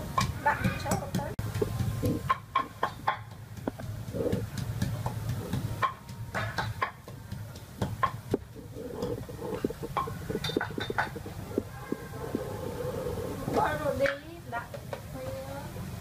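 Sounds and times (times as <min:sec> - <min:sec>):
pestle pounding in a mortar: 0:00.0 - 0:12.6
low rumble: 0:08.3 - 0:14.0.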